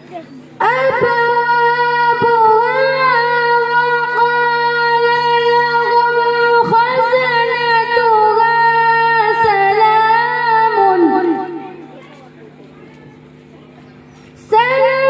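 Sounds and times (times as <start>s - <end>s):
woman chanting through a microphone: 0.0s - 12.0s, 14.4s - 15.0s.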